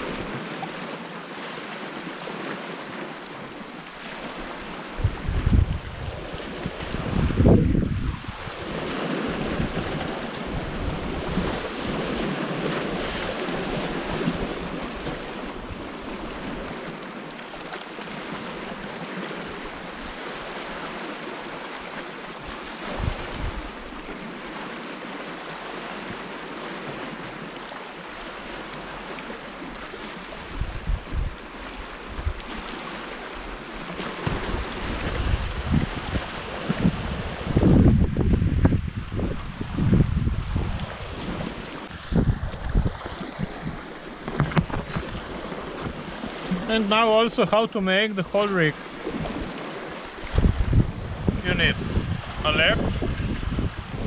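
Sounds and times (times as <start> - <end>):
waves washing against rocks: 0.0 - 54.0
wind gusting on microphone: 4.2 - 16.8, 22.4 - 24.3, 30.3 - 32.7, 33.4 - 47.0, 48.7 - 54.0.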